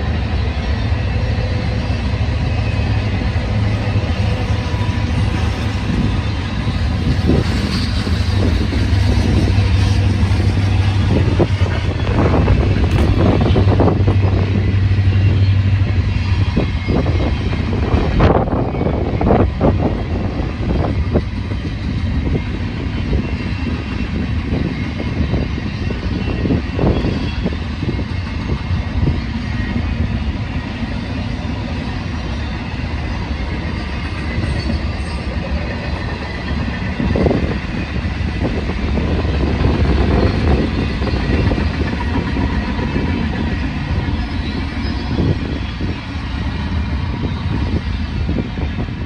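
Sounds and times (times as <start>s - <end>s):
train cars knocking: 0.0s - 49.0s
train wheels rumbling on rails: 0.0s - 49.0s.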